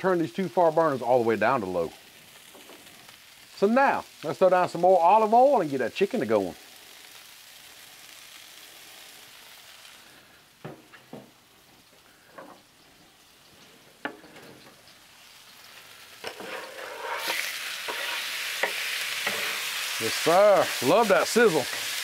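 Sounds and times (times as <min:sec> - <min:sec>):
loud steady sizzle: 0:00.0 - 0:22.0
oil sizzling on a griddle: 0:00.0 - 0:22.0
chicken sliding off cutting board: 0:16.2 - 0:18.2.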